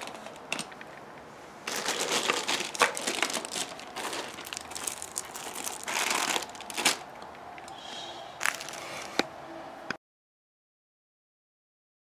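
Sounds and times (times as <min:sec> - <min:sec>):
plastic bags crinkling: 0:00.0 - 0:00.7, 0:01.6 - 0:07.4, 0:08.4 - 0:09.2.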